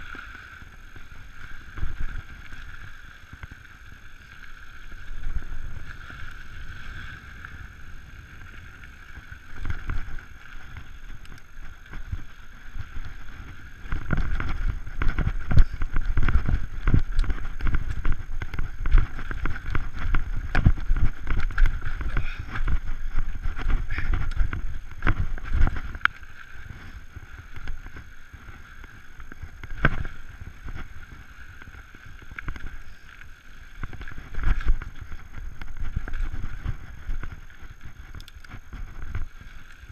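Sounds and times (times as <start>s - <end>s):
wind rumble on microphone: 0.0s - 39.9s
bike clattering over rocks: 13.8s - 26.2s.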